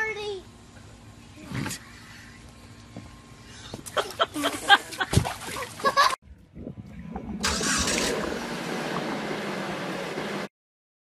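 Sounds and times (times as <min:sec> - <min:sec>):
water splashing: 0:04.0 - 0:06.2.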